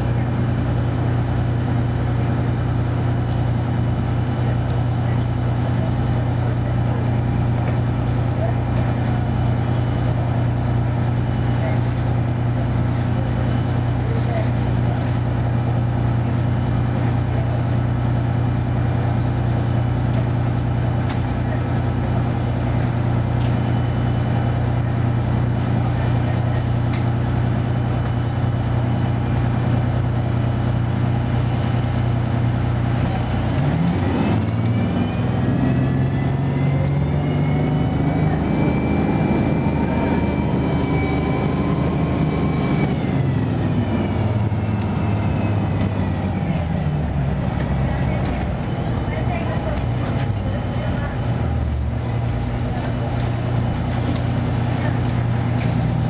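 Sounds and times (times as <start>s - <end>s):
diesel bus engine idling: 0.0s - 56.0s
engine revving with rising whine: 33.0s - 47.9s.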